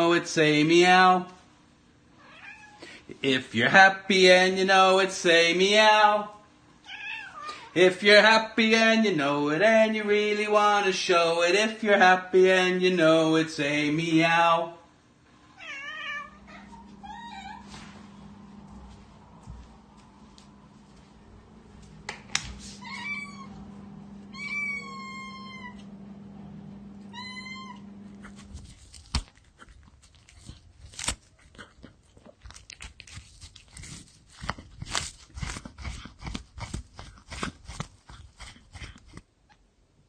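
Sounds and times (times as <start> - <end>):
cat meowing: 2.2 - 2.8, 6.8 - 7.7, 15.6 - 17.7, 22.8 - 23.6, 24.3 - 25.9, 27.1 - 27.9
cat chewing tissue paper: 28.3 - 39.3.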